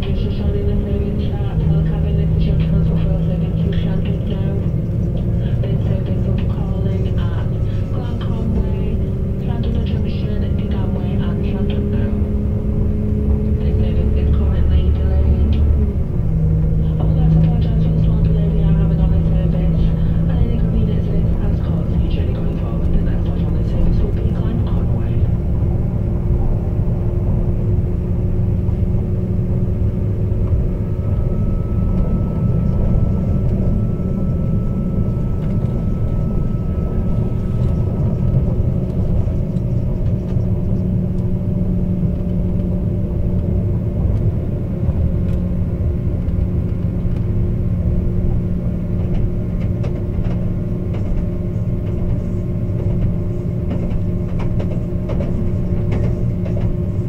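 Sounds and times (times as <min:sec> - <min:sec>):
diesel engine running: 0:00.0 - 0:57.0
train wheels rumbling on rail: 0:00.0 - 0:57.0
faint high whine: 0:28.5 - 0:42.3.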